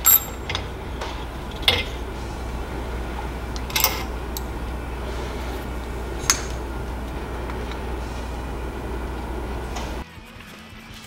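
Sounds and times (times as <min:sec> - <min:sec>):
metal clinks and clatter: 0:00.0 - 0:10.0
steady low hum: 0:00.0 - 0:10.0.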